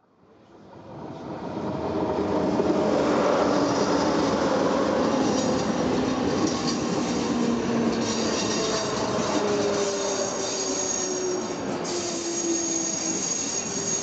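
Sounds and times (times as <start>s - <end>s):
train wheels rumbling on rail: 0.9s - 14.0s
high-pitched wheel squeal: 8.0s - 14.0s.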